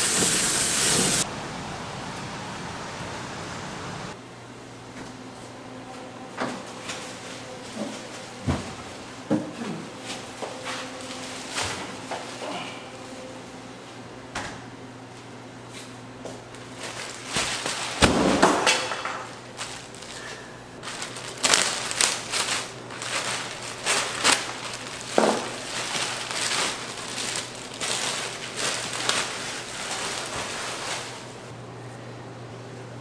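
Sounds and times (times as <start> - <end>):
kitchen knocks and clatter: 18.0 - 19.4
steady low hum: 19.2 - 33.0.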